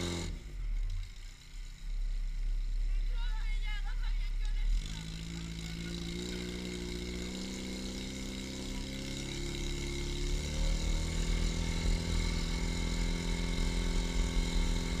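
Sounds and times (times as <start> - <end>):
pump engine running: 4.9 - 15.0.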